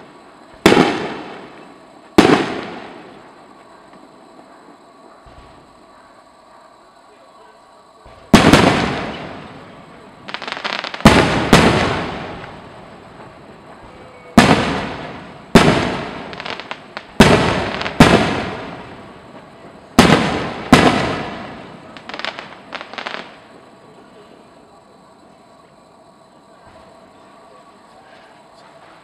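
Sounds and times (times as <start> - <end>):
small firework pops: 0.0 - 5.7, 13.2 - 23.4
firework booms: 0.0 - 6.0, 8.0 - 23.7.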